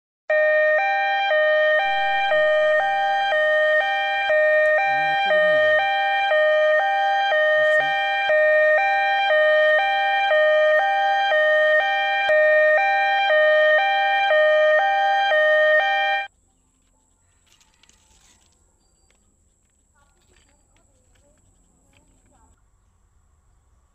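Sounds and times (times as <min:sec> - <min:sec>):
two-tone siren: 0:00.3 - 0:16.3.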